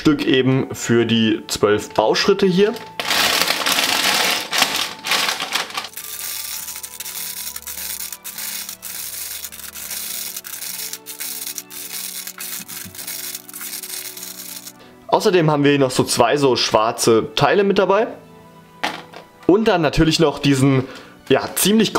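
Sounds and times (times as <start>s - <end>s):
soft background music: 0.0s - 21.9s
plastic bags crinkling: 3.0s - 14.8s.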